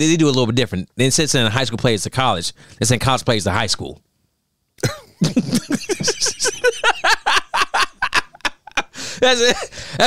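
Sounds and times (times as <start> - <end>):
men laughing: 4.8 - 10.0.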